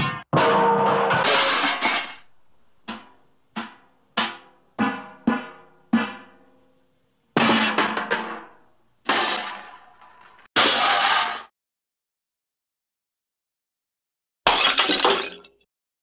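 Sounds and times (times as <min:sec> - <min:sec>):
loud cartoon crash: 0:10.6 - 0:11.5.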